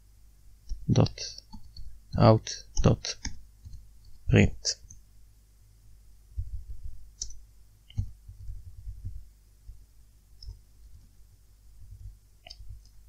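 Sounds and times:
keyboard typing: 6.4s - 9.2s.

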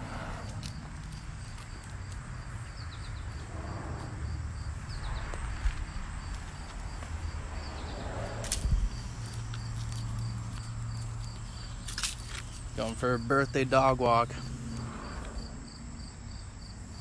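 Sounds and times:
insects chirping: 0.0s - 17.0s
low outdoor rumble: 0.0s - 17.0s
footsteps on grass and gravel: 0.4s - 3.5s, 4.6s - 14.3s.

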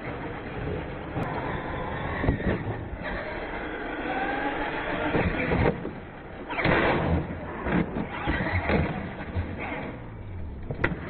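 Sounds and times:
truck banging over ramps: 0.0s - 11.0s
toy truck motor whining: 1.2s - 5.9s.

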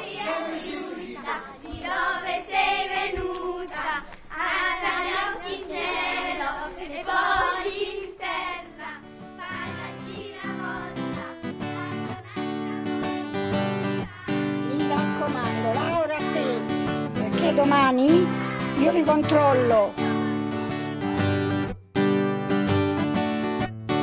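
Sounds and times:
children singing: 0.0s - 16.6s, 18.0s - 20.7s
acoustic guitar music: 8.5s - 24.0s.

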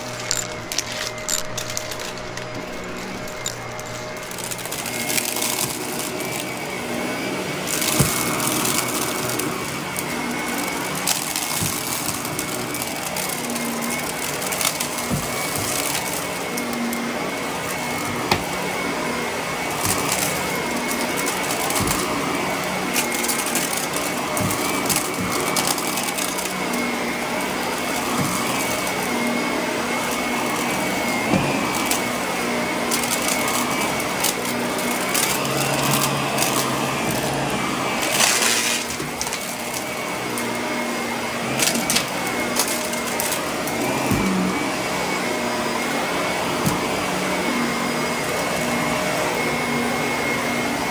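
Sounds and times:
debris clicks and rattles: 0.0s - 6.2s
upright vacuum running: 0.0s - 50.9s.

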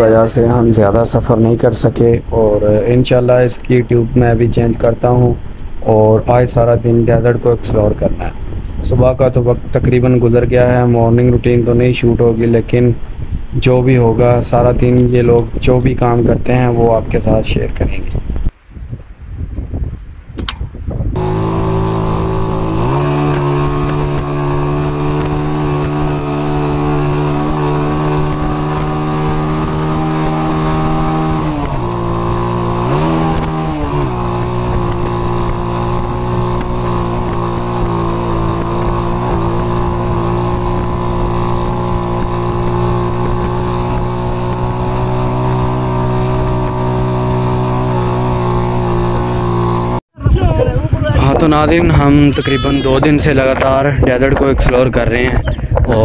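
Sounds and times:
motorcycle engine running: 21.1s - 56.0s.

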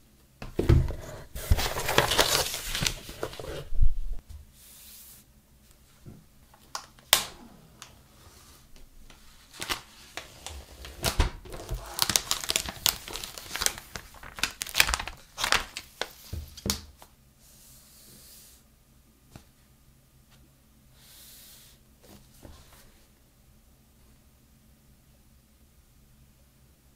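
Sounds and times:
plastic wrap crinkling and tearing: 1.4s - 3.7s, 9.4s - 16.8s.

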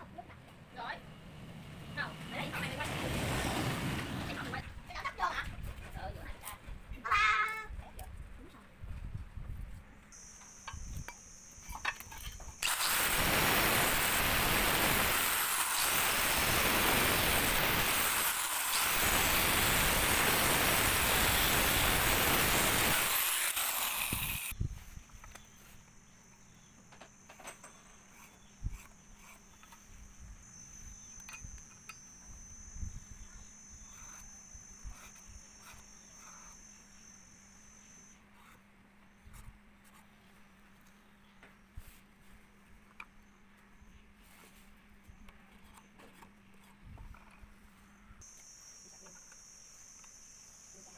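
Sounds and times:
grinder disc grinding steel: 10.2s - 24.5s.

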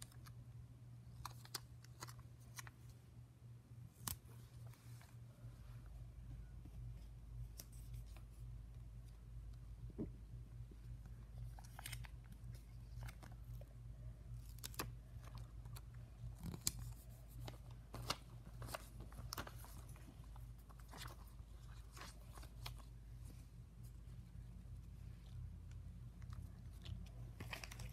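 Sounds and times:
plastic sticker sheet crinkling: 11.4s - 13.7s, 14.3s - 23.0s, 25.2s - 27.9s.

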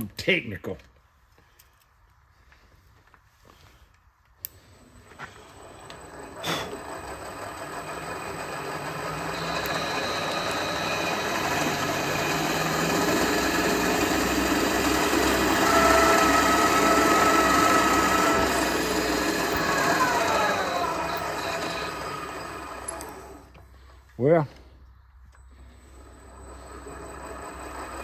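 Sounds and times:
drill cutting into metal: 5.4s - 23.5s
high squeal: 15.4s - 22.6s.

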